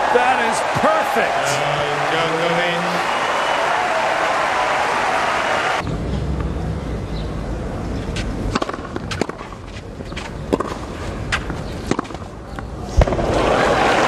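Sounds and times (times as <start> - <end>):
shoes scuffing on clay court: 8.0 - 13.2.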